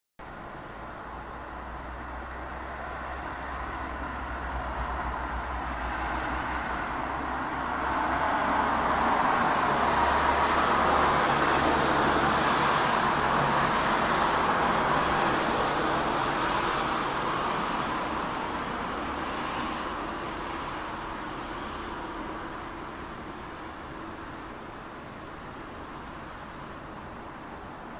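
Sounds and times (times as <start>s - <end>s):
vehicle passing by: 1.9s - 22.0s.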